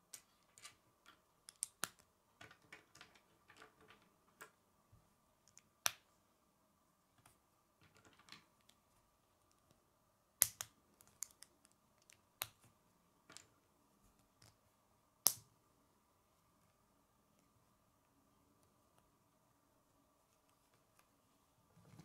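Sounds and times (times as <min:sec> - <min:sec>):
plastic pieces snapping together: 0:01.5 - 0:03.2, 0:10.4 - 0:12.7.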